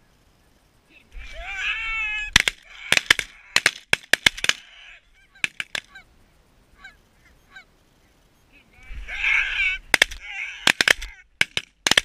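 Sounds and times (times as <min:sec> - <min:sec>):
geese honking: 0:04.4 - 0:07.7
shotgun shots: 0:09.9 - 0:12.0.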